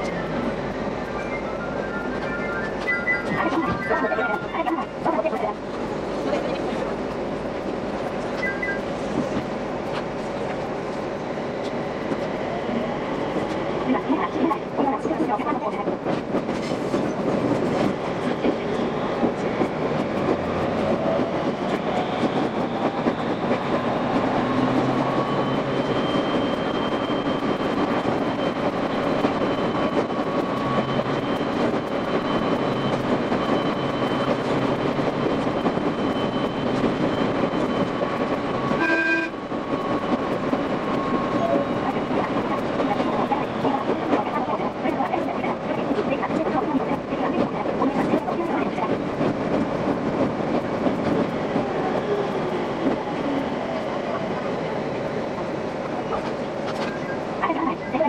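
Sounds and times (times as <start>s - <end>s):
steady train whine: 0.0s - 58.0s.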